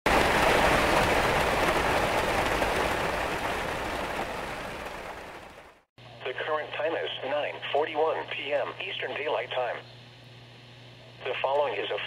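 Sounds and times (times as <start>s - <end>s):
steady rain: 0.1s - 5.9s.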